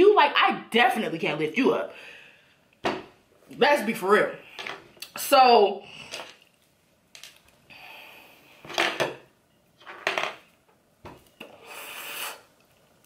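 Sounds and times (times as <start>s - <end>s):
small objects clinking and knocking: 7.1s - 7.5s, 9.8s - 10.5s
faint hiss: 11.4s - 12.6s.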